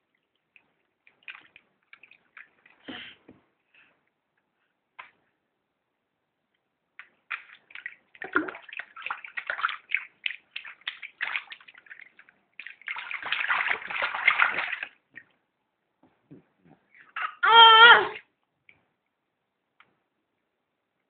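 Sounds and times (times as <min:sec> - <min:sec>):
bathwater splashing: 0:00.0 - 0:03.2, 0:07.0 - 0:15.3.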